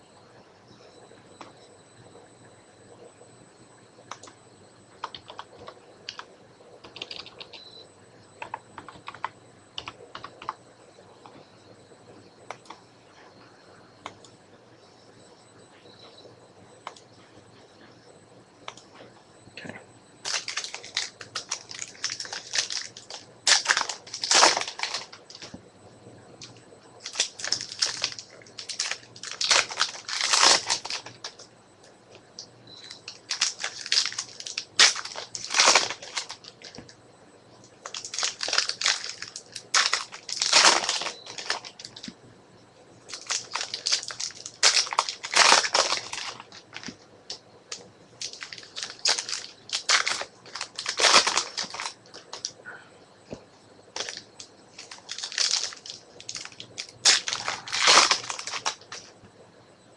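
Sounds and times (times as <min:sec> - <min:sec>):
card pack wrappers crinkling: 0:20.2 - 0:25.6, 0:27.0 - 0:31.4, 0:32.8 - 0:36.9, 0:37.8 - 0:42.1, 0:43.1 - 0:52.6, 0:53.9 - 0:59.1.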